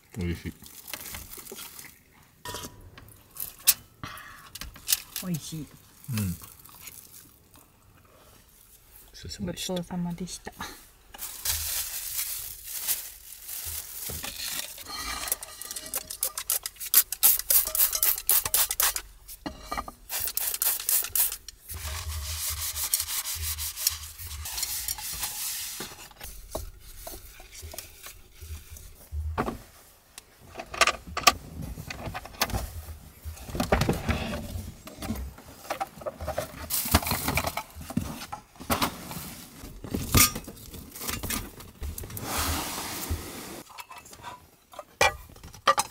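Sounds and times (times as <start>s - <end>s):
scratchy wiping of a pan: 21.7s - 29.1s.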